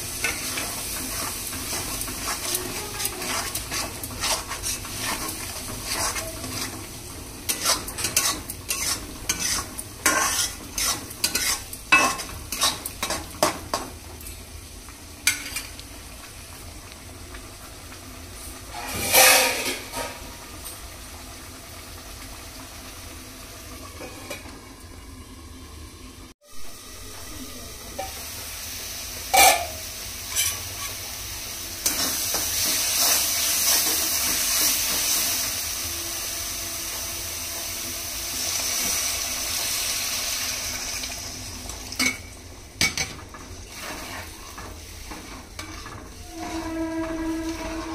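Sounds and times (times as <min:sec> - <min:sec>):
food sizzling in a pan: 0:00.0 - 0:47.9
metal spoon scraping a pan: 0:00.2 - 0:13.8, 0:18.7 - 0:20.2, 0:29.3 - 0:31.1, 0:31.8 - 0:35.3, 0:43.7 - 0:47.9.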